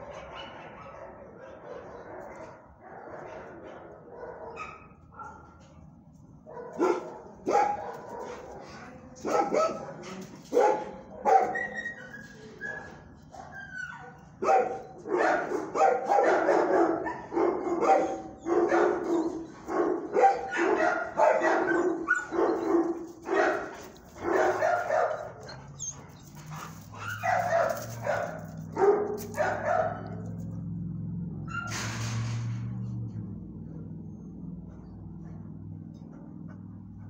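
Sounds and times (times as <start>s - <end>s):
dog barking: 0.0s - 5.6s, 6.5s - 11.8s, 12.6s - 25.7s, 26.9s - 30.4s.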